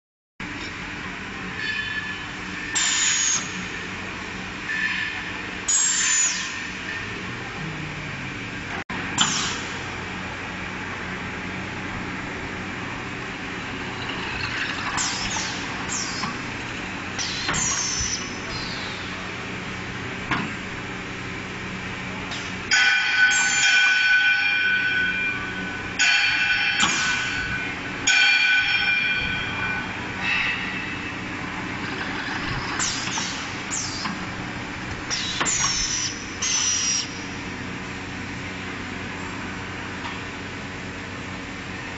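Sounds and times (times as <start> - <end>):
machine motors humming: 0.4 - 41.9.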